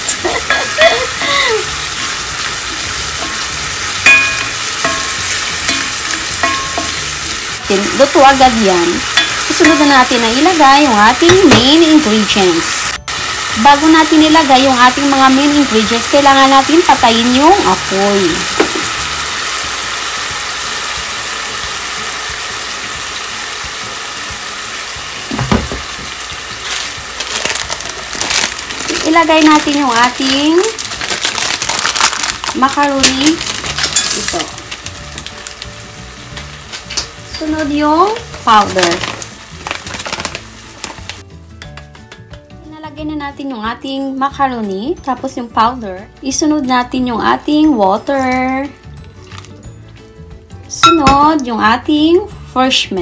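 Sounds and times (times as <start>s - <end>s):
food sizzling in oil: 0.0s - 41.5s.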